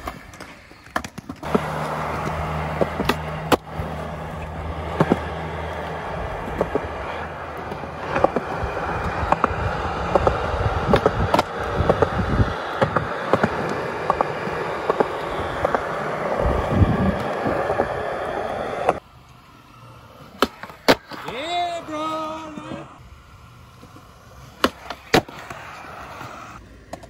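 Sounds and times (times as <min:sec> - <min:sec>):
skateboard clacks: 0:00.0 - 0:19.0, 0:20.3 - 0:21.7, 0:23.7 - 0:27.0
skateboard wheels rolling on concrete: 0:00.0 - 0:27.0.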